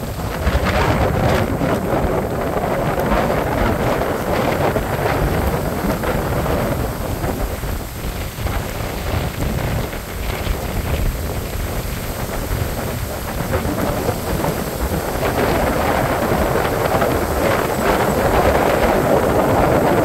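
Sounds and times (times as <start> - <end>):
storm wind buffeting microphone: 0.0 - 20.0.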